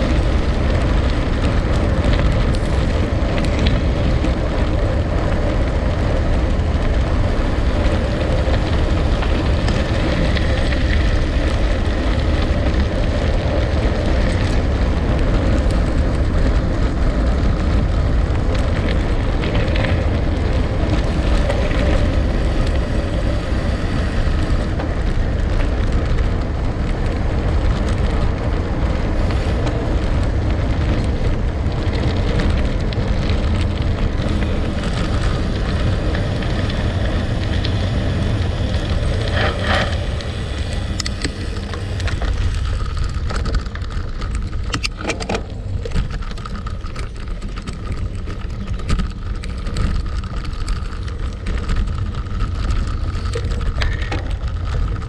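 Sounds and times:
bike tyres rolling on gravel: 0:00.0 - 0:55.0.

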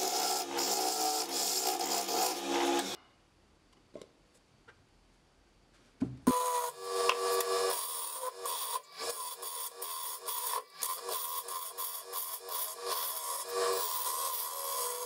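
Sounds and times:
lathe motor hum: 0:00.0 - 0:03.0
lathe tool cutting wood: 0:00.0 - 0:03.0, 0:06.3 - 0:15.0.

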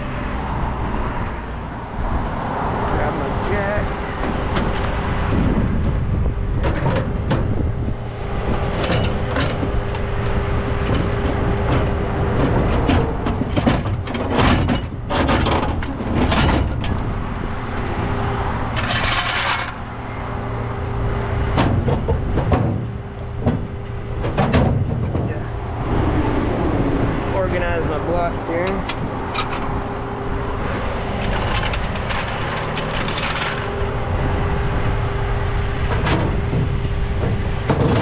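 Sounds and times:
metal clunks and rattles: 0:04.1 - 0:17.2, 0:18.6 - 0:20.7, 0:21.4 - 0:25.8, 0:28.6 - 0:29.9, 0:30.5 - 0:35.0, 0:35.6 - 0:38.0
diesel engine idling: 0:17.0 - 0:37.7.

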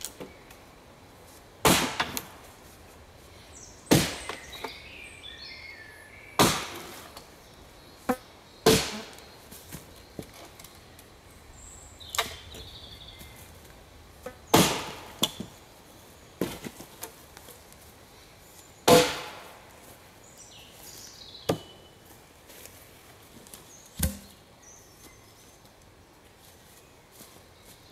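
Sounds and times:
axe chopping into log: 0:01.6 - 0:02.4, 0:03.9 - 0:04.7, 0:06.4 - 0:07.0, 0:08.6 - 0:09.2, 0:14.5 - 0:15.5, 0:18.9 - 0:19.5, 0:24.0 - 0:24.3.

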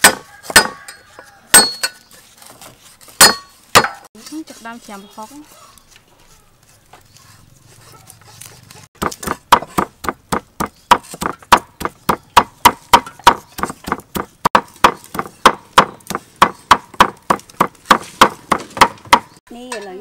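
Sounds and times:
cleaver chopping on wooden block: 0:00.0 - 0:00.9, 0:03.2 - 0:04.1, 0:09.0 - 0:19.4.

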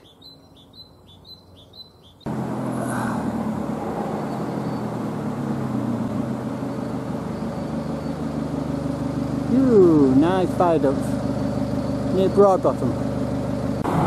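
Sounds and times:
bird chirping: 0:00.0 - 0:02.3, 0:04.1 - 0:05.0, 0:06.6 - 0:08.8
car engine humming: 0:00.0 - 0:14.0
road noise: 0:00.0 - 0:14.0.

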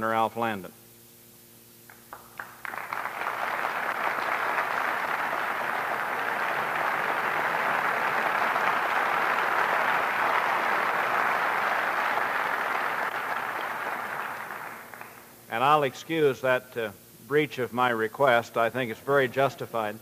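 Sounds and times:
audience clapping: 0:01.9 - 0:15.4.

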